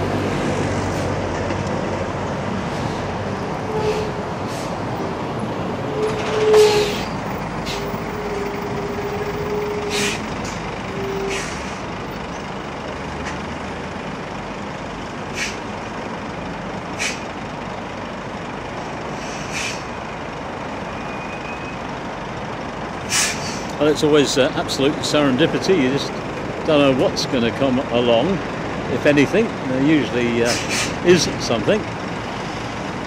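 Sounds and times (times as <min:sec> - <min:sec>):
lorries passing: 0:00.0 - 0:33.0
traffic rumble: 0:00.0 - 0:33.0
air brake hisses: 0:09.9 - 0:10.3, 0:11.2 - 0:11.8, 0:15.3 - 0:15.6, 0:17.0 - 0:17.3, 0:19.2 - 0:19.9, 0:23.1 - 0:23.7, 0:30.5 - 0:31.0.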